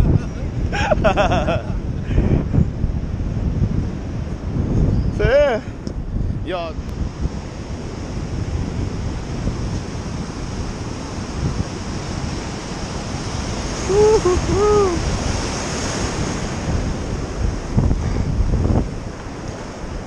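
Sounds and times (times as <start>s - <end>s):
wind buffeting microphone: 0.0s - 20.0s
ocean surf breaking: 6.7s - 20.0s.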